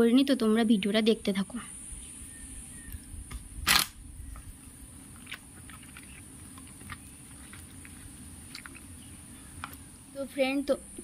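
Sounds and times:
wet squelching of mashed fruit: 4.9 - 10.0.

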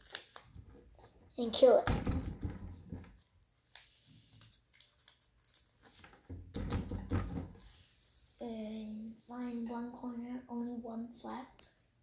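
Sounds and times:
paper rustling and crinkling: 0.0 - 0.9, 2.8 - 6.4.

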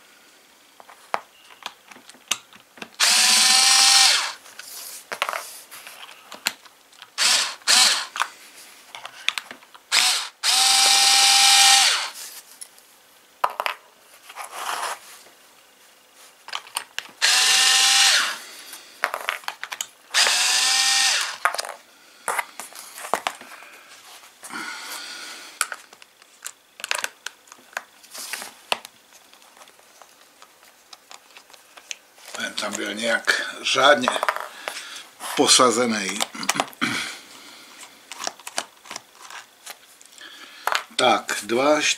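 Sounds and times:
cordless drill spinning: 3.0 - 4.4, 7.1 - 8.3, 9.9 - 12.2, 17.2 - 18.5, 20.1 - 21.4
screws and plastic rattling: 19.0 - 21.8, 25.6 - 28.5.

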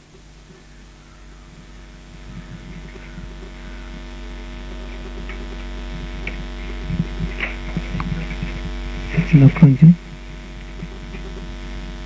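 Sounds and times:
electrical mains hum: 0.0 - 12.0
faint clicks and knocks: 4.8 - 9.1.

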